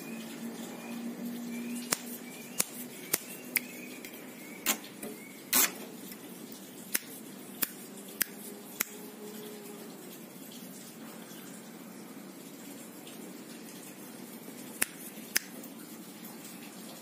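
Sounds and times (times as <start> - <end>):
faint high bird chirps: 0.0 - 5.6.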